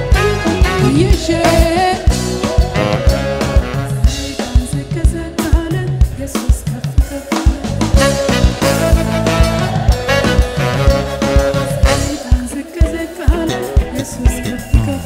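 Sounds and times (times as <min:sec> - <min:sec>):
live band playing worship music: 0:00.0 - 0:15.0.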